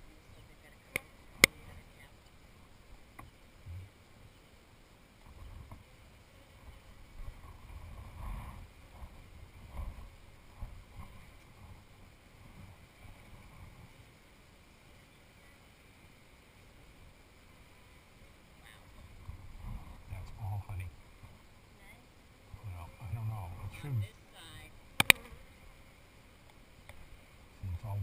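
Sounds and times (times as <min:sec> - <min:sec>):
muffled thumps and rubbing: 0:03.2 - 0:03.9.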